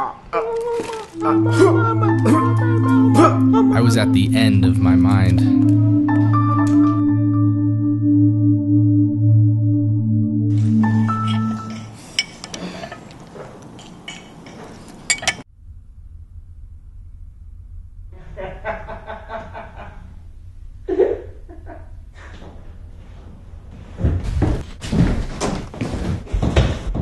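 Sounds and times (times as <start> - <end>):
men laughing: 0.8 - 4.0, 18.2 - 20.1, 20.9 - 22.0
dishes clinking: 11.7 - 13.2, 13.8 - 15.4.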